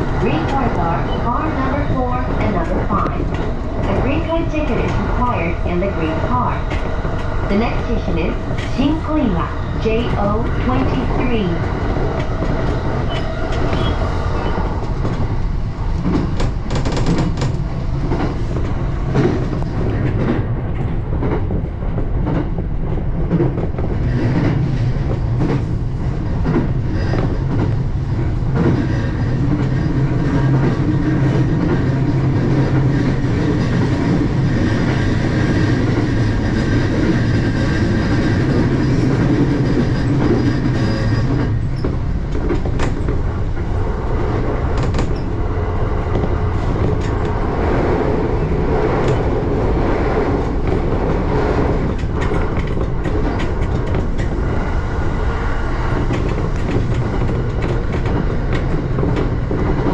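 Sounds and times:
train low hum: 0.0 - 59.9
train wheels clicking over rail joints: 16.0 - 43.8, 44.7 - 45.4, 48.7 - 54.7, 55.7 - 59.9.

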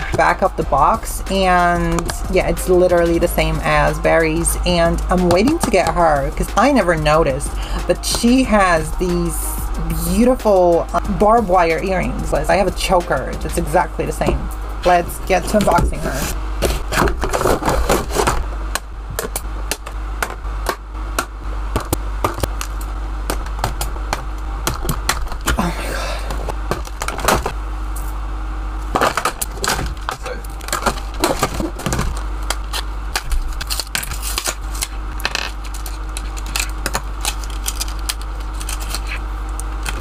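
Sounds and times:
steady low hum: 0.0 - 40.0
plastic packaging crinkling: 29.0 - 40.0.

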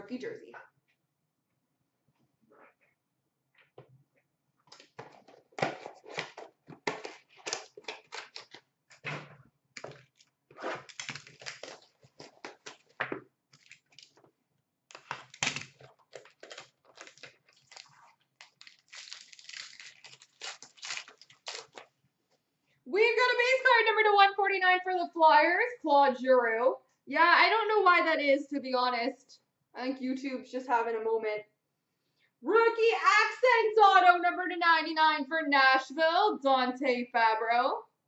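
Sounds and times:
plastic wrap and cardboard crinkling: 4.8 - 9.0, 9.8 - 14.3, 14.9 - 22.0.

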